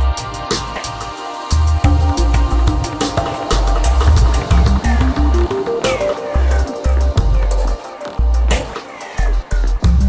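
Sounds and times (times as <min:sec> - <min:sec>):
crisp percussion: 0:00.0 - 0:10.0
electronic music with heavy bass beat: 0:00.0 - 0:10.0
synth melody climbing in pitch: 0:01.8 - 0:07.8.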